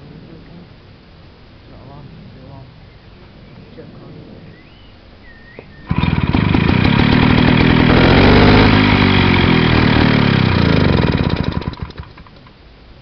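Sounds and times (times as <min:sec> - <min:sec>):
small engine running: 0:05.8 - 0:12.5.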